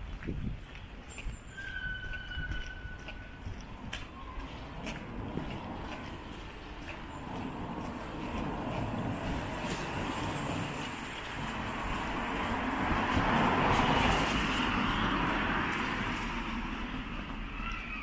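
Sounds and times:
car passing by: 4.4 - 18.0.

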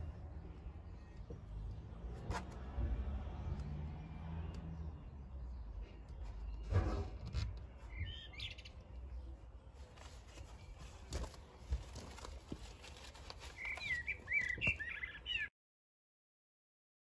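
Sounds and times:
songbird chirping: 0.0 - 15.5.

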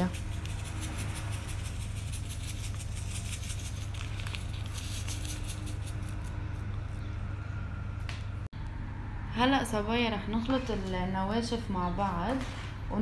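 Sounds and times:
low hum: 0.1 - 10.3
plastic sachet crinkling: 2.4 - 6.3.

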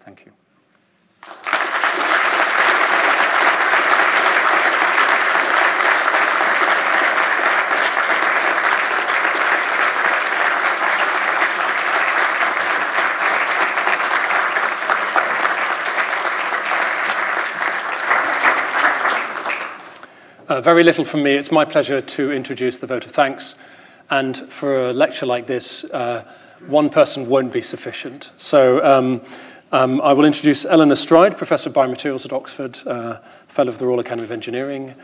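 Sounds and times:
audience applauding: 1.2 - 20.1.

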